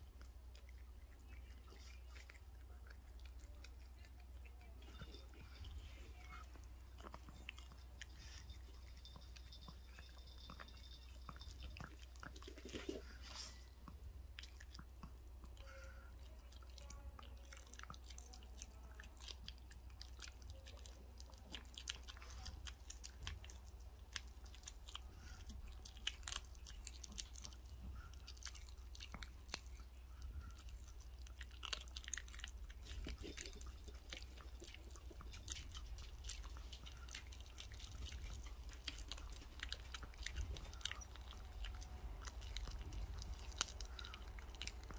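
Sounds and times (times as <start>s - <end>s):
puppy chewing raw chicken: 0.0s - 44.9s.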